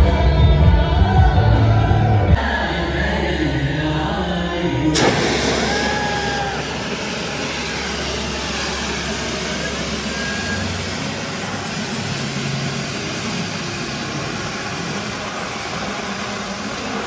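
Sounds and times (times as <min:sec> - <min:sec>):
loud rushing hiss of machines: 0:04.9 - 0:17.0.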